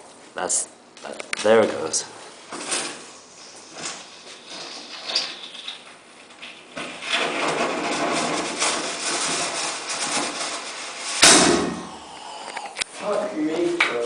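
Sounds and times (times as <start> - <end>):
loud bang: 11.1 - 12.1.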